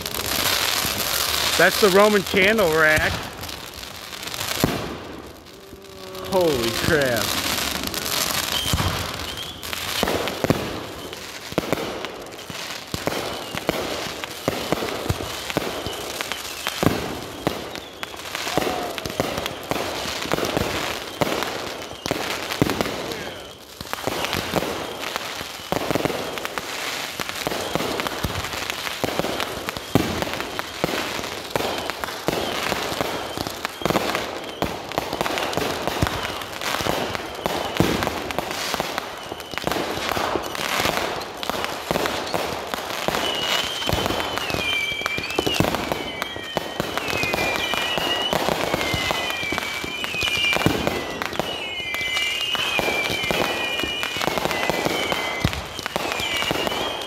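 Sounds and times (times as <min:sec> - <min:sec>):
fireworks bangs and crackle: 0:00.0 - 0:57.0
warbling firework whistles: 0:00.0 - 0:57.0.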